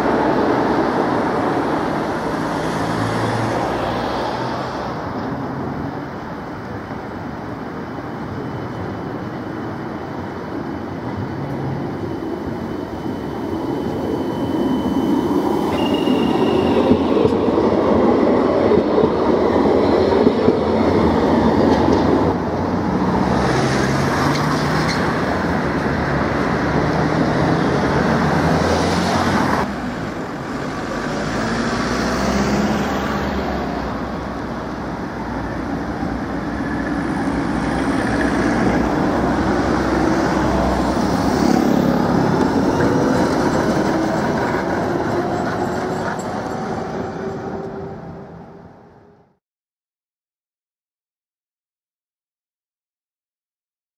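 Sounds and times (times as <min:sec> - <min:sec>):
tram wheels rumbling on rails: 0:00.0 - 0:49.0
street traffic: 0:00.0 - 0:49.4
high wheel squeal: 0:11.6 - 0:17.6.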